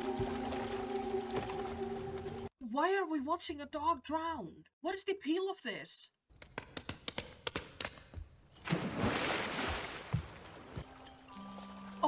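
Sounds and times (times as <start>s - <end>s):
body splashing into water: 8.6s - 10.8s
water sloshing: 8.6s - 12.0s.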